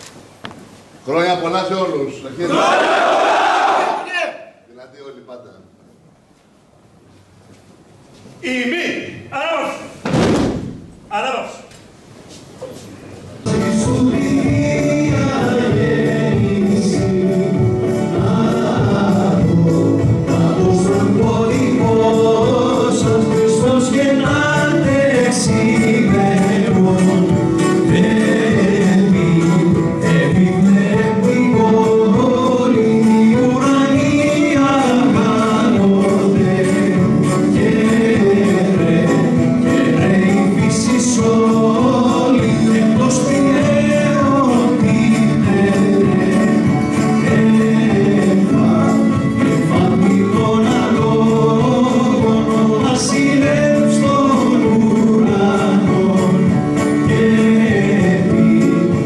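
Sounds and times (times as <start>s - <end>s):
small live band playing: 12.2s - 59.0s
men singing as a group: 13.4s - 59.0s.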